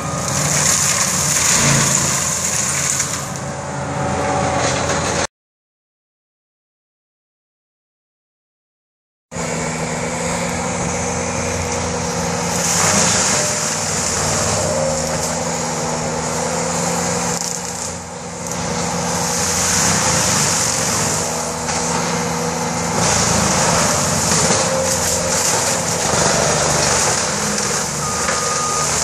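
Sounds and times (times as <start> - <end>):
engine drone: 0.0 - 5.3, 9.3 - 29.0
mulcher grinding hiss: 10.4 - 29.0.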